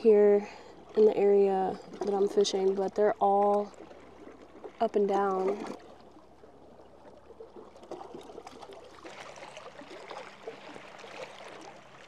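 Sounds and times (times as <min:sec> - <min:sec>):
small waves lapping on rocks: 0:00.0 - 0:12.0.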